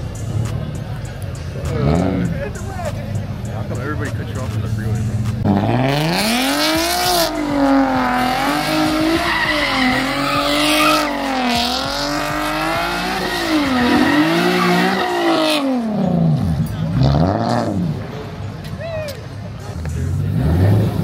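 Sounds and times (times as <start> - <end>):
tires squealing: 4.3 - 21.0
car engine revving high: 4.5 - 18.1.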